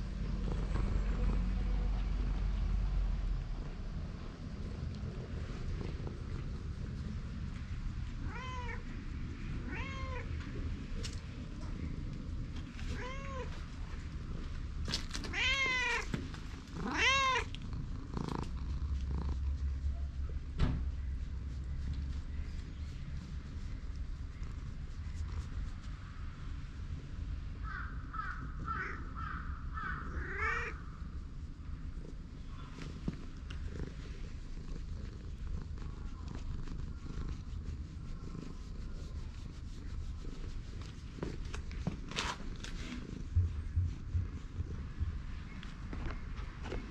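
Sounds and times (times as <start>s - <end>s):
cat purring: 0.0s - 27.4s, 30.1s - 46.9s
cat meowing: 8.2s - 8.8s, 9.6s - 10.3s, 12.9s - 13.6s, 15.2s - 16.1s, 16.8s - 17.5s, 30.0s - 30.8s.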